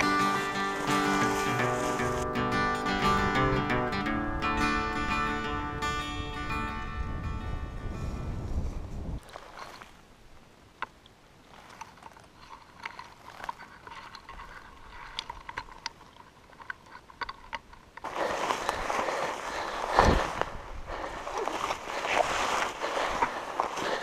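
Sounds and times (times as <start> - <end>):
branches brushing and scraping: 0.0 - 3.3, 8.4 - 24.0
shrubs ticking and crackling: 0.0 - 4.1, 9.2 - 24.0.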